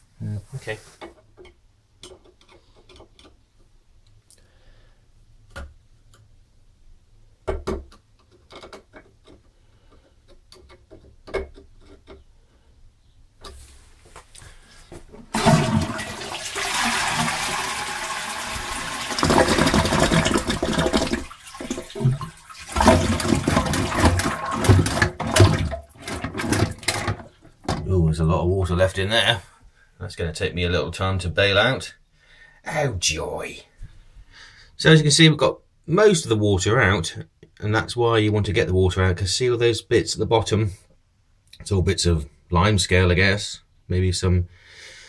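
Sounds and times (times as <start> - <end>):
faint clicks and knocks: 1.0 - 4.4, 7.4 - 12.3
toilet flush water rushing: 15.3 - 27.3.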